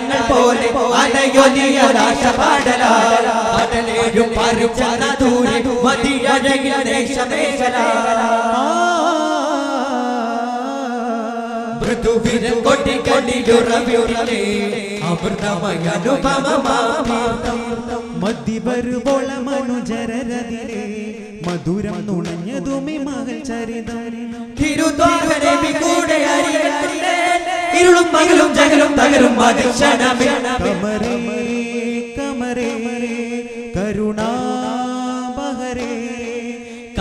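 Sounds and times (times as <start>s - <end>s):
group chanting in chorus: 0.0s - 18.3s, 24.6s - 32.0s.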